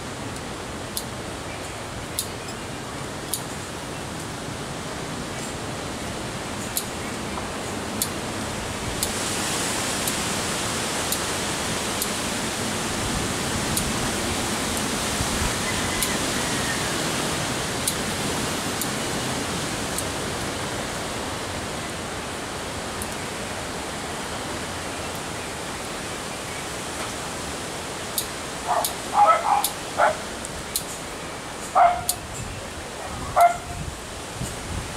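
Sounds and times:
rushing background noise: 0.0 - 34.9
dog barking: 28.6 - 30.3, 31.7 - 32.2, 33.0 - 33.8.

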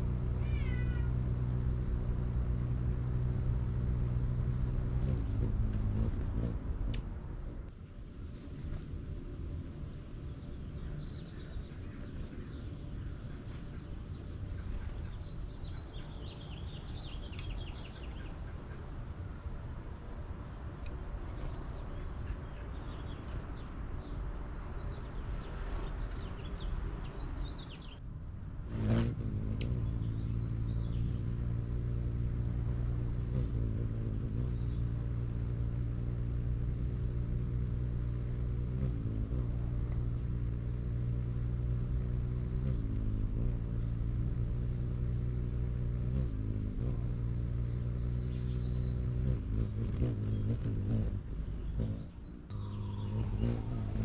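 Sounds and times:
engine running: 0.0 - 7.8, 28.7 - 54.0
faint bird chirps: 51.6 - 54.0.

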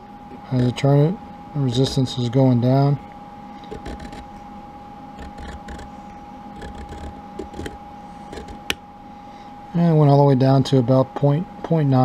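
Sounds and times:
resistor knob scraping and ticking: 3.6 - 4.2, 5.2 - 5.9, 6.6 - 8.8.

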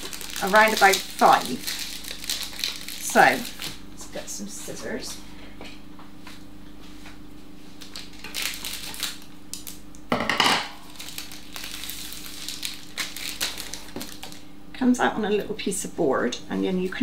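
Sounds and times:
packet rustling: 0.0 - 3.8, 7.8 - 9.8, 10.8 - 14.5
fan oven humming: 0.0 - 17.0.

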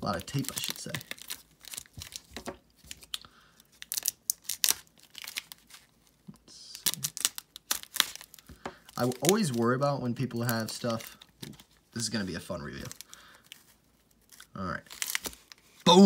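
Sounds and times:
wrapping crinkling: 0.0 - 15.9
tape tearing and peeling: 6.7 - 8.4, 14.2 - 15.6.

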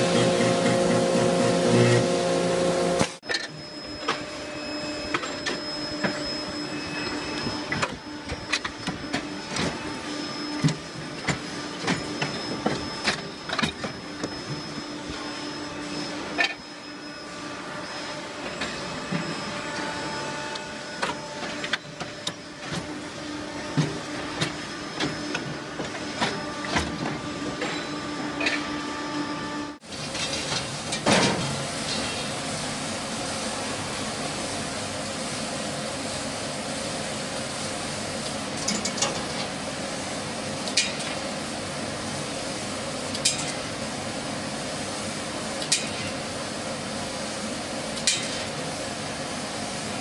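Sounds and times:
loud machine sound: 0.0 - 31.4
machinery hum: 0.0 - 50.0
faint high whine: 3.3 - 26.7.

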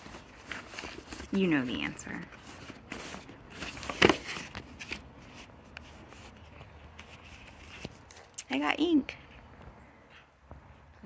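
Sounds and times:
cardboard boxes rustling: 0.0 - 8.3.

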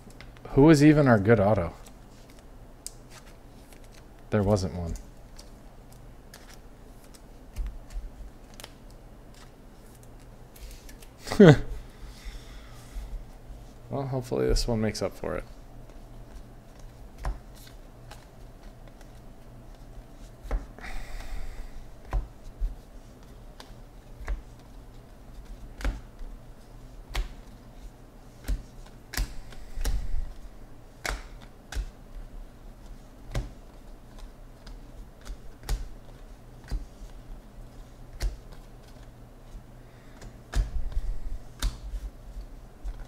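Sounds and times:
card rustle: 1.8 - 11.2
cards clicking off a stack: 31.0 - 31.9.

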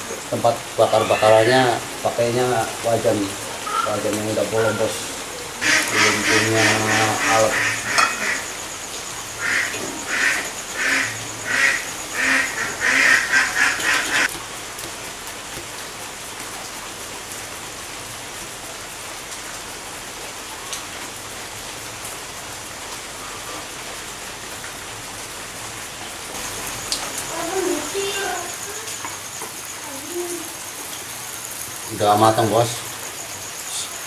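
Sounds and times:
steady hiss: 0.0 - 34.0
duck quacking: 5.6 - 8.5, 9.4 - 14.3.

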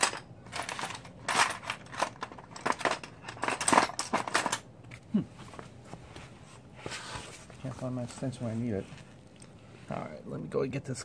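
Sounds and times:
metal tools clinking in a tray: 0.0 - 4.7.

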